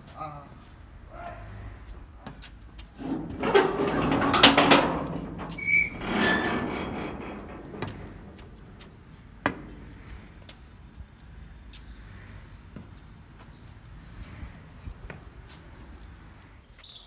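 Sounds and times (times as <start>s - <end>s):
metal gate scraping and rattling: 2.9s - 10.4s
hinge squeal: 3.0s - 9.0s.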